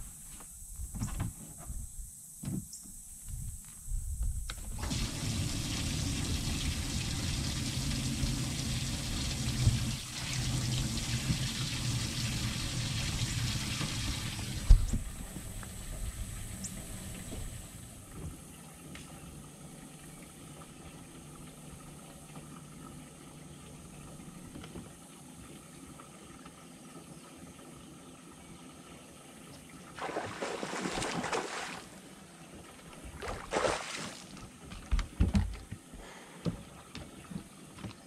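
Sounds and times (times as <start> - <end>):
wind: 0.0 - 38.0
water: 4.5 - 38.0
fish splashing at surface: 30.0 - 32.0, 33.2 - 34.4
thumps on boat deck: 34.8 - 35.8.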